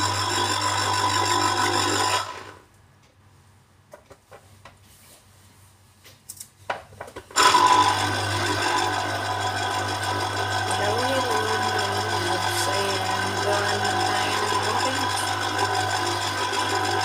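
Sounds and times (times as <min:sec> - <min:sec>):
electric juicer motor running: 0:00.0 - 0:02.6, 0:07.4 - 0:17.0.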